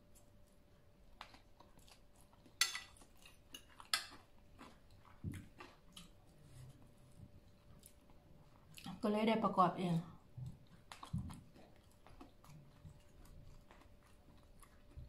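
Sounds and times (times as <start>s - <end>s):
person chewing: 0.1s - 9.0s, 10.2s - 15.0s
cutlery clicking on ceramic bowl: 2.6s - 3.0s, 3.6s - 4.2s.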